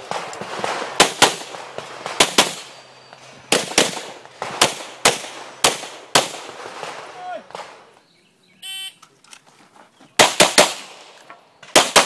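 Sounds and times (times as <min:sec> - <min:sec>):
pistol shots with echo: 0:00.0 - 0:02.8, 0:03.5 - 0:07.8, 0:10.2 - 0:12.0.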